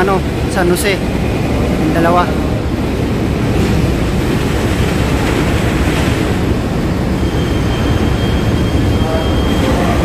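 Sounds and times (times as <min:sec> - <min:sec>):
ship engines rumbling: 0:00.0 - 0:10.0
faint high whine: 0:06.8 - 0:10.0.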